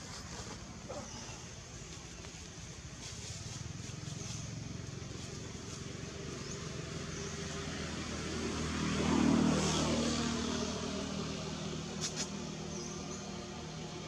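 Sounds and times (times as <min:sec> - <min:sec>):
vehicle passing by: 0:03.1 - 0:14.0.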